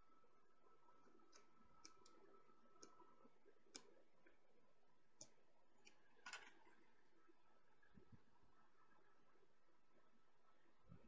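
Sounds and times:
small plastic parts clicking: 1.3s - 3.0s, 5.2s - 6.8s.

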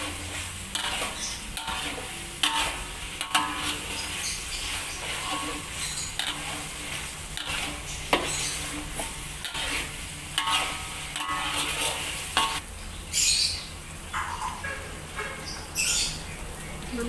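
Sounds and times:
spatula scraping metal wok: 0.0s - 12.6s
spice paste sizzling: 0.0s - 14.2s.

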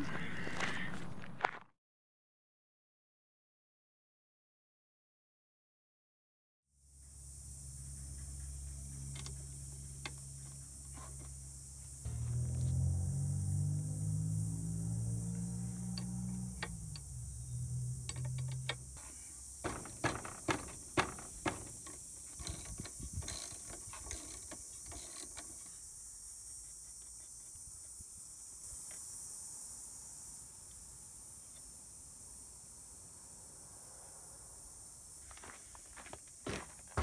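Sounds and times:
ratchet clicking: 18.0s - 25.7s.

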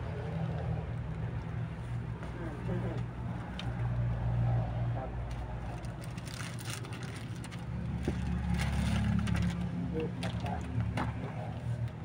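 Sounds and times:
clothes and plastic rustling: 5.2s - 12.0s.

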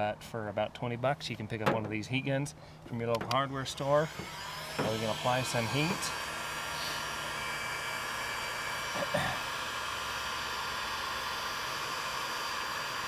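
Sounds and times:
faint motor whine: 0.0s - 13.0s
heat gun blowing: 3.7s - 13.0s.

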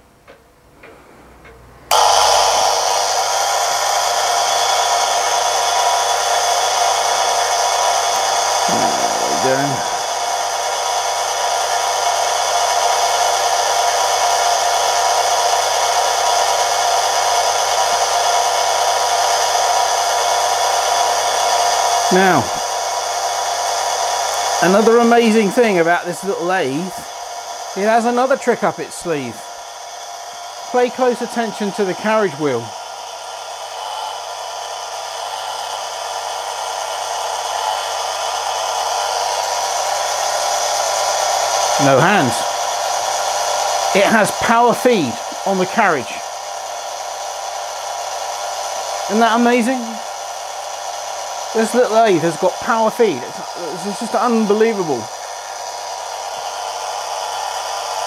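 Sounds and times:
lathe motor whirring: 1.9s - 58.0s
low motor hum: 8.6s - 11.0s.

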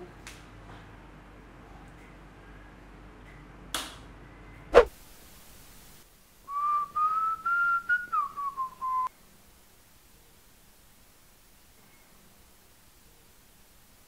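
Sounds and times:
brief swish: 4.7s - 5.0s
man whistling a tune: 6.5s - 9.1s.

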